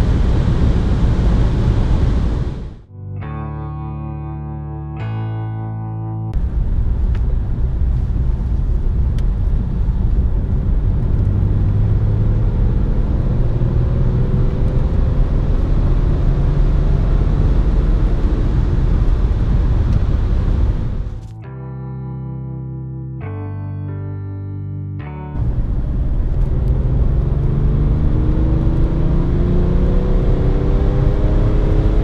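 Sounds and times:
engine and road rumble in car: 0.0s - 2.9s, 6.3s - 21.4s, 25.4s - 32.0s
engine note rising in pitch: 10.0s - 21.3s, 25.4s - 32.0s.

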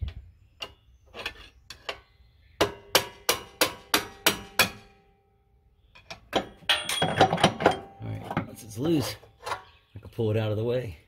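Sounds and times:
hammer striking steel: 2.6s - 5.0s.

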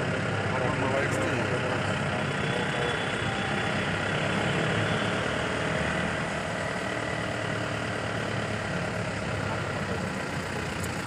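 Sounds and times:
diesel vehicles idling rumble: 0.0s - 11.0s.

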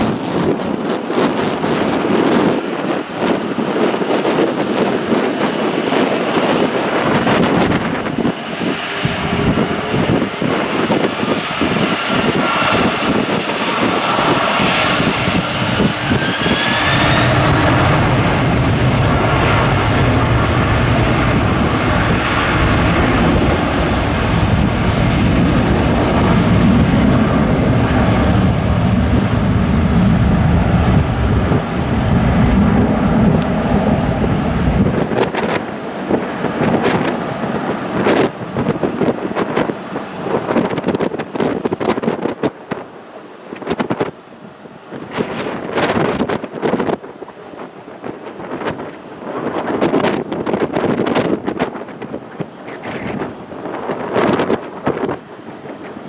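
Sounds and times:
deep jet engine rumble: 0.0s - 56.0s
jet engines whining: 0.0s - 56.0s.

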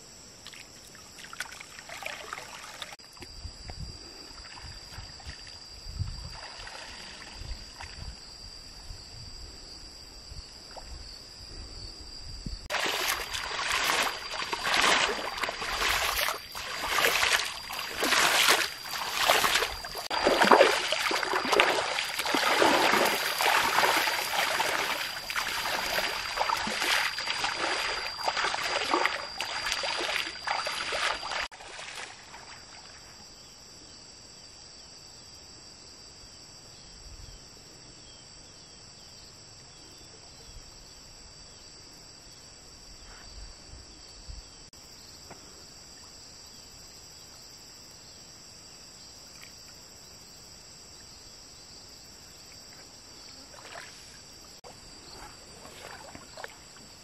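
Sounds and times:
insects droning: 0.0s - 57.0s
legs wading through water: 12.7s - 32.6s, 53.4s - 57.0s.

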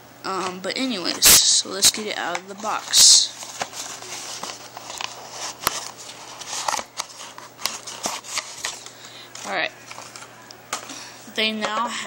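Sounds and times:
cardboard rustling and scraping: 2.2s - 10.9s.

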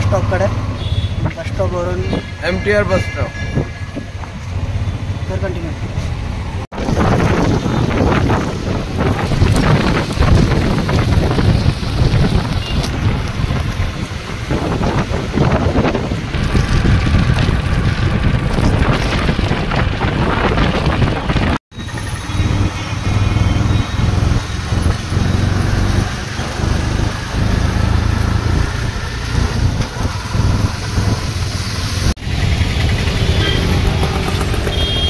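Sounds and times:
auto-rickshaw engine running: 4.2s - 35.0s
wind buffeting microphone: 6.1s - 21.6s, 22.4s - 33.0s.

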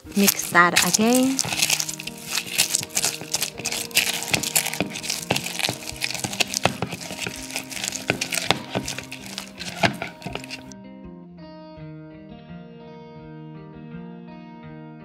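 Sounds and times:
spoon scraping glass bowl: 0.0s - 10.7s
quiet background music: 0.0s - 10.8s.

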